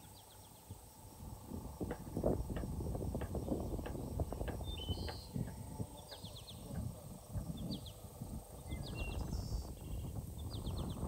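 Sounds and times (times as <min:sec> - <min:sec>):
small birds chirping: 0:03.3 - 0:11.0.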